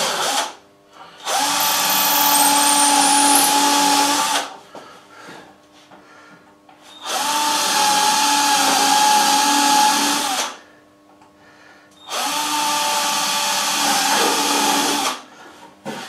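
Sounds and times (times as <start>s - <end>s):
power drill boring into wood: 1.3s - 4.0s.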